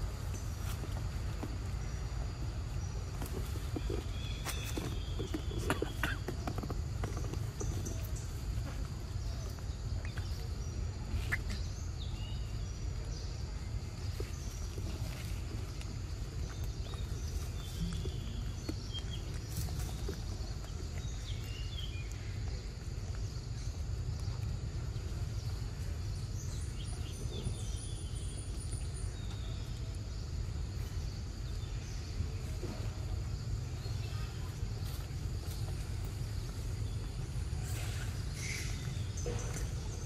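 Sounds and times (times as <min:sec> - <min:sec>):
faint bird chirps: 0:33.6 - 0:40.0.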